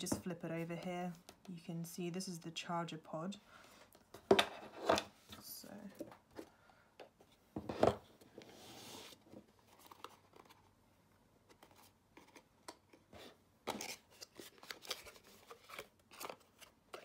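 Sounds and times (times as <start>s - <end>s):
cardboard scrape: 7.6s - 10.5s.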